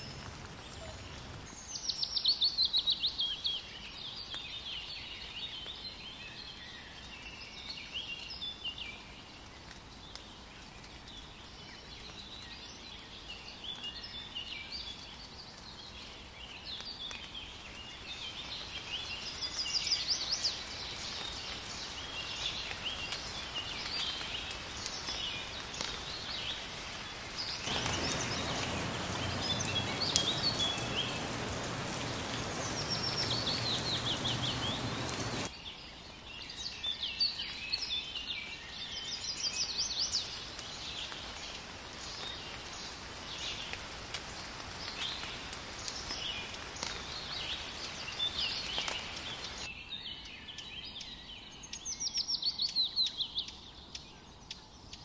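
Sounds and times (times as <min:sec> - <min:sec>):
steady rain: 0:00.0 - 0:49.7
birds chirping and trilling: 0:16.8 - 0:40.8.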